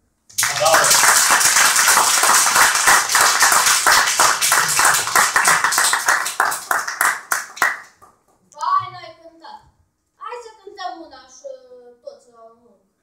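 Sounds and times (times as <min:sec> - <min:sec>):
audience applauding: 0:00.3 - 0:08.2.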